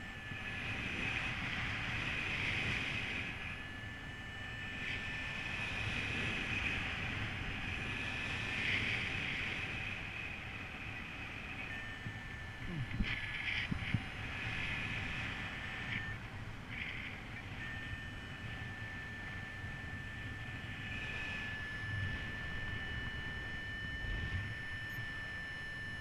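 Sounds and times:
faint high whistle: 0.0 - 13.7, 14.3 - 26.0
wind rushing over microphone: 4.6 - 18.8, 20.2 - 25.0.

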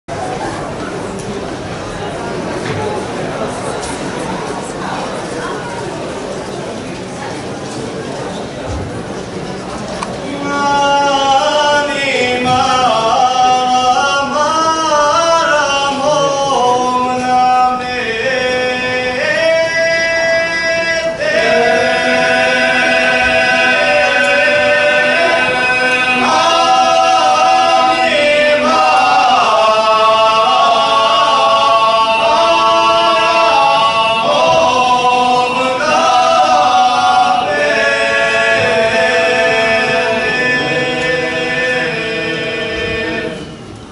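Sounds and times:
male vocal group singing a cappella: 10.2 - 43.7.

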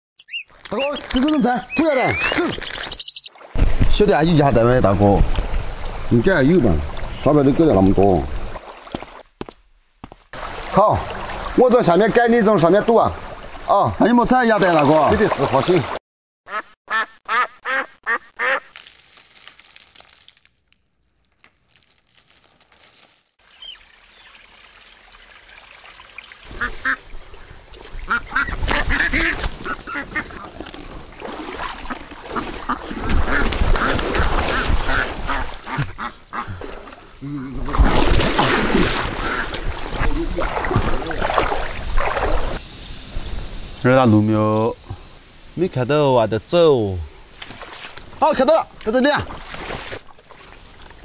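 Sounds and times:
rustling and splashing through brush: 0.5 - 4.2, 8.4 - 12.2, 18.7 - 42.6, 47.2 - 51.0
ducks quacking: 16.5 - 18.7, 26.4 - 27.1, 27.9 - 30.6, 31.7 - 36.8, 38.9 - 41.4.

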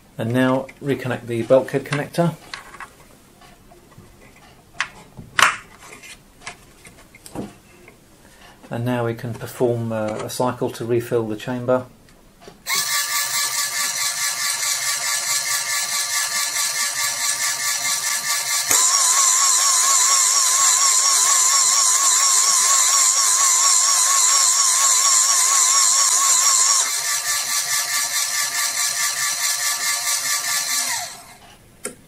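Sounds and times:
analyser pumps buzzing: 12.7 - 31.4
higher whine: 18.7 - 26.9.

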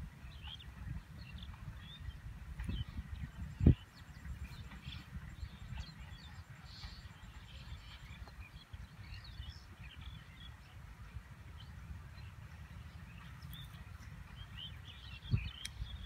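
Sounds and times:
small birds chirping: 0.0 - 16.0
wind rumble on microphone: 0.0 - 16.0.

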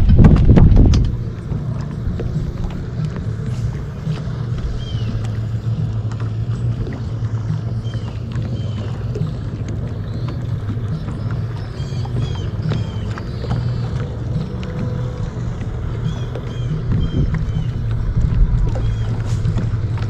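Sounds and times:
wind and water rumble: 0.0 - 20.0.

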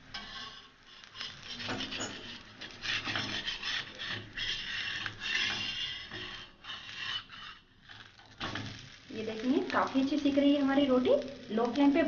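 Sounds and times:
metal spatula scraping iron pan: 0.1 - 8.9.

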